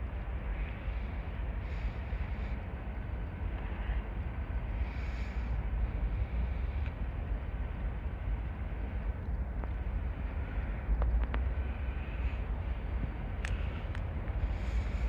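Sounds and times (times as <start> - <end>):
diesel locomotive rumble: 0.0 - 15.0
faint clicks: 6.8 - 7.0, 13.4 - 14.5.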